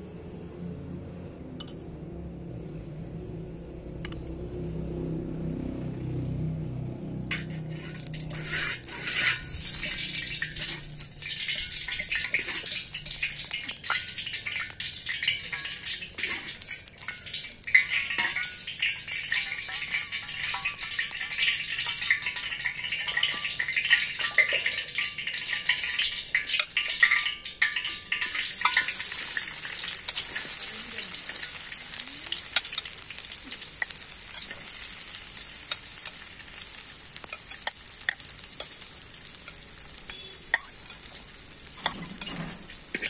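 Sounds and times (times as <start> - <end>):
oil sizzling and crackling in pan: 7.1 - 43.0
metal ladle clinking against pan: 7.3 - 20.9, 21.8 - 29.5, 39.4 - 43.0.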